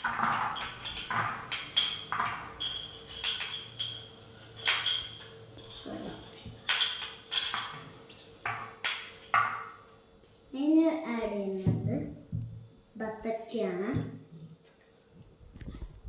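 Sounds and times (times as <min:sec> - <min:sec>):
utensil clinking against dish: 0:00.0 - 0:09.7.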